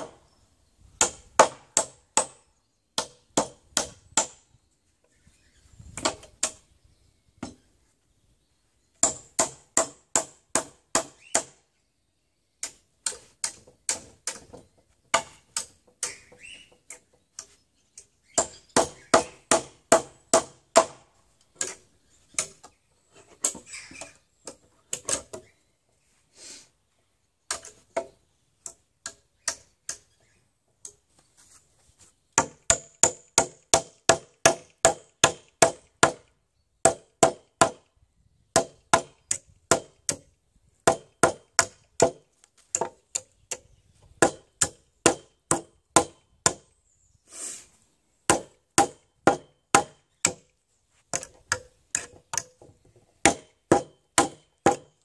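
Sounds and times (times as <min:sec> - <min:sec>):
hammer hitting nails: 0:48.3 - 0:50.4, 0:53.2 - 0:55.0.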